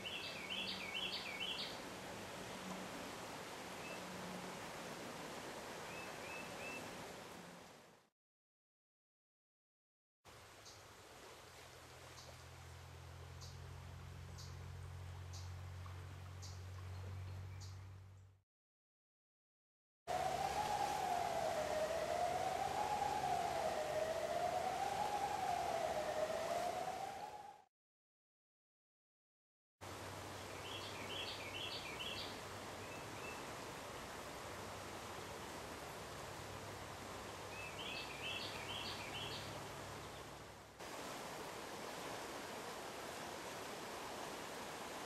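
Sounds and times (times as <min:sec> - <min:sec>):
river rushing: 0:00.0 - 0:08.0, 0:20.1 - 0:27.6, 0:29.8 - 0:45.0
siren wavering: 0:20.1 - 0:27.7.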